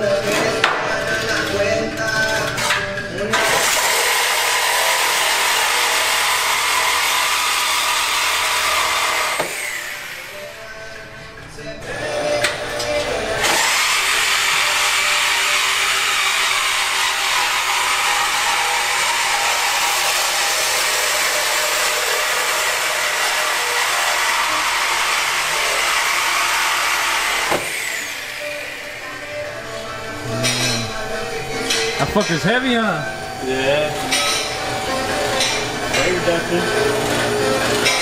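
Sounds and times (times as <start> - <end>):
power tool cutting steel pipe: 3.3 - 10.6, 12.4 - 29.4, 34.0 - 38.0.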